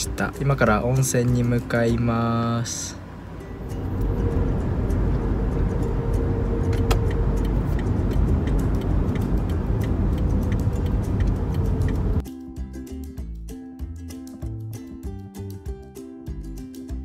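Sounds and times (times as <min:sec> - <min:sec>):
car road and engine rumble: 0:00.0 - 0:12.2
music: 0:00.0 - 0:17.0.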